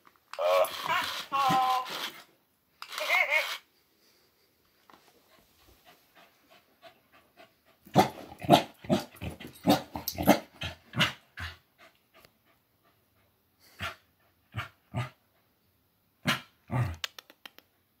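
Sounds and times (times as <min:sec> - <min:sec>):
dog panting: 0:05.1 - 0:09.7, 0:10.4 - 0:15.6.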